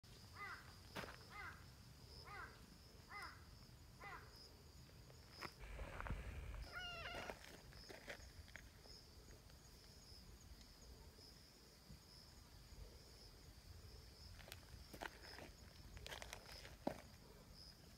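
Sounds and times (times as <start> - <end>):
short falling animal calls: 6.0 - 7.4
wavering animal call: 6.7 - 7.4.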